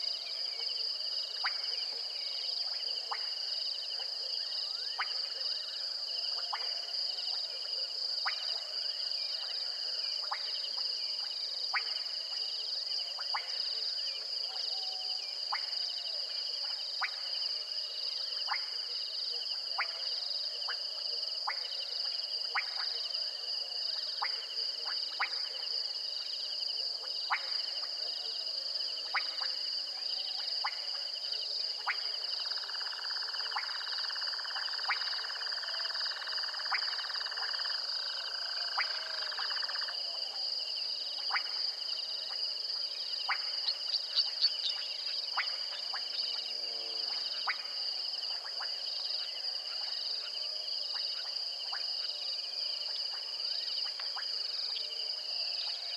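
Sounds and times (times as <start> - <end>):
insects trilling: 26.6 - 55.9
frog calls: 30.4 - 55.9.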